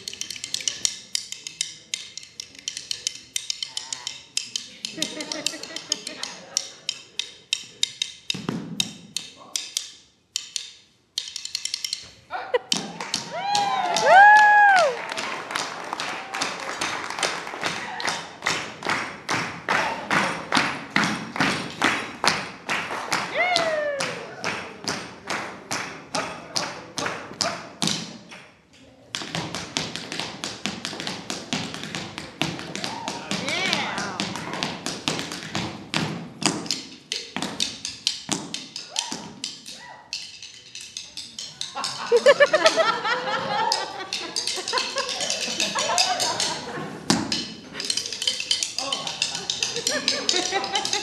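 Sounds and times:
drumsticks clicking together: 0.0 - 12.1, 36.4 - 42.6, 47.3 - 51.0
tap shoes on wooden floor: 29.2 - 36.8.

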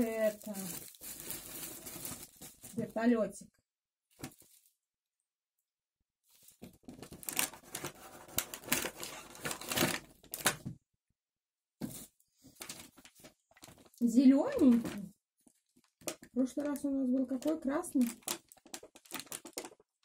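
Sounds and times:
plastic packaging crinkling: 0.0 - 3.0, 6.3 - 10.6, 12.6 - 20.0.

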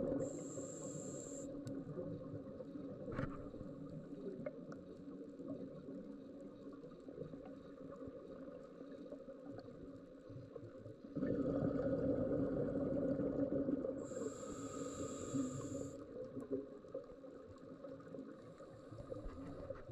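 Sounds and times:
low underwater hum: 0.0 - 19.9
high hiss: 0.2 - 1.5, 14.1 - 16.0
exhaled bubbles rumbling: 11.1 - 14.1
diver breathing through regulator: 14.0 - 16.0.

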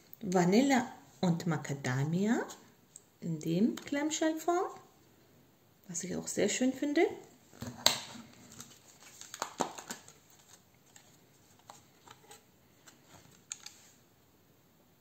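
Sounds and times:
plastic pack clicking and crackling: 7.8 - 13.8.

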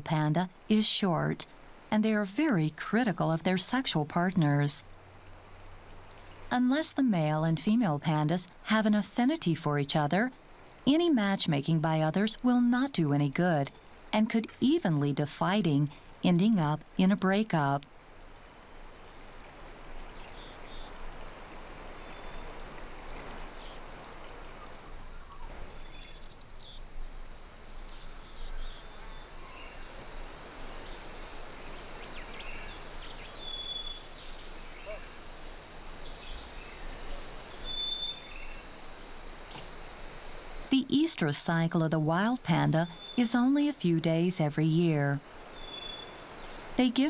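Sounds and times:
insects droning: 0.0 - 47.0
soft hiss: 1.4 - 1.9, 4.8 - 7.2, 17.8 - 42.2
birds chirping: 41.4 - 47.0.

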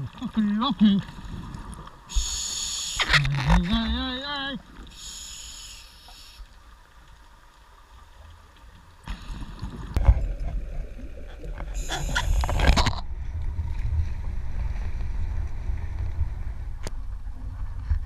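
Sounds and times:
breath bubbles hissing: 1.2 - 3.3, 4.9 - 6.5, 11.4 - 12.9
diver breathing through regulator: 4.9 - 6.4.

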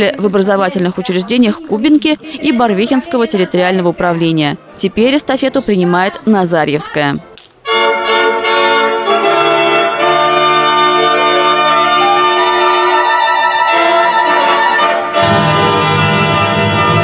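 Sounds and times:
brass chords: 7.6 - 17.0.

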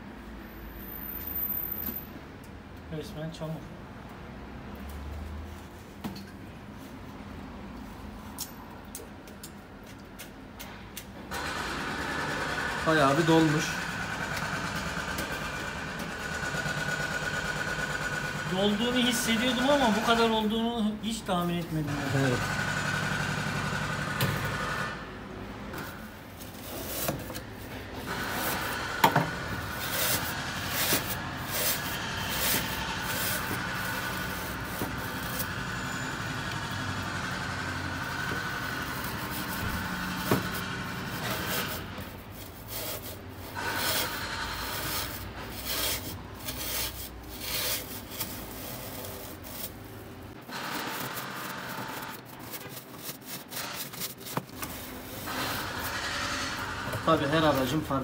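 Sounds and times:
rasping scraping strokes: 25.8 - 58.0.

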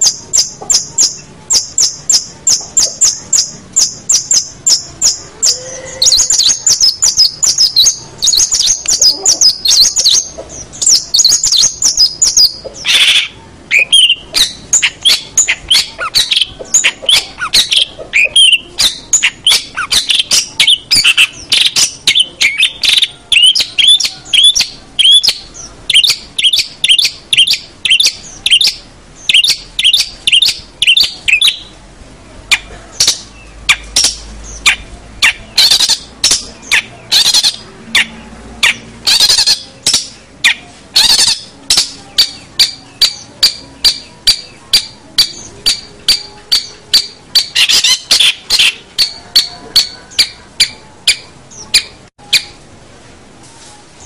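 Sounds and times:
shrike singing chattering chirps: 0.0 - 31.8, 32.5 - 52.6.

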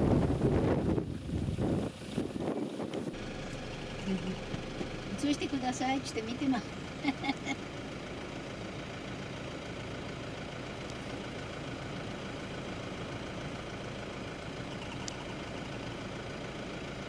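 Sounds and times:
low background rumble: 0.0 - 17.0
faint high ticks: 14.8 - 15.3.

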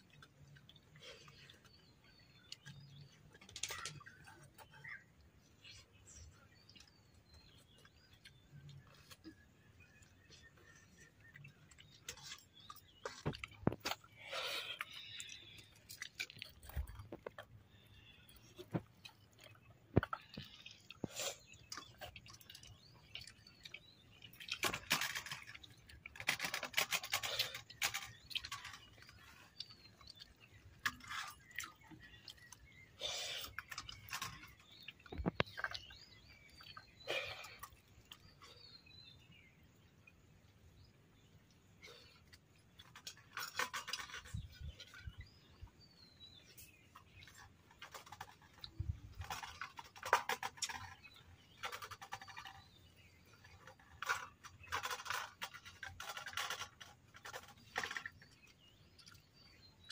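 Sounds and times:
person chewing food: 6.5 - 24.6.

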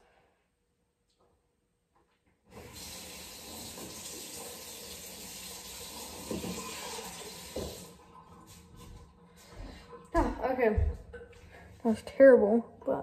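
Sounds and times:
water running from faucet into sink: 2.5 - 9.4
faucet knocking shut: 6.2 - 7.9.

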